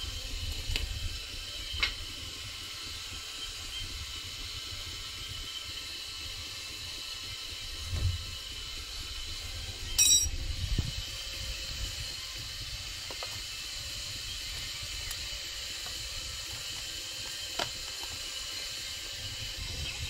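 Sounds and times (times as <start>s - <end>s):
metal tools clicking: 10.0s - 10.3s
sharp metallic clink: 10.0s - 10.3s.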